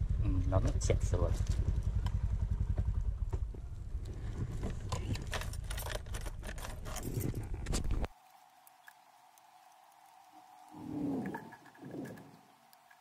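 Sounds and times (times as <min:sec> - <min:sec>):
scooter engine running: 0:00.0 - 0:07.6
bike rattling over rough path: 0:00.7 - 0:08.1.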